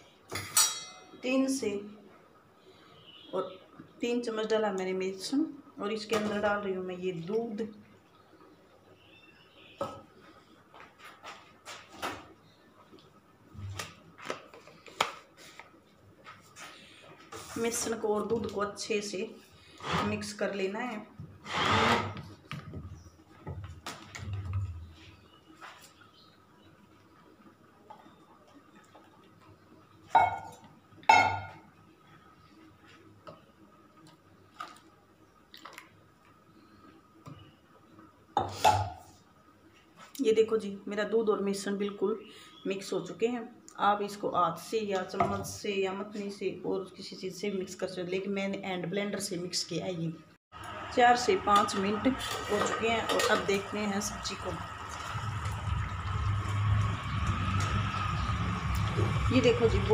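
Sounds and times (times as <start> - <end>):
kitchen items clicking and knocking: 51.5 - 53.7.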